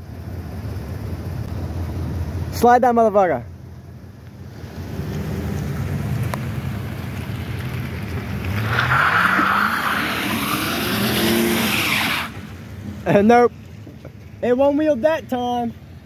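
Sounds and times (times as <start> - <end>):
tire spinning on wet pavement: 4.6 - 13.2
truck engine revving: 4.8 - 13.2.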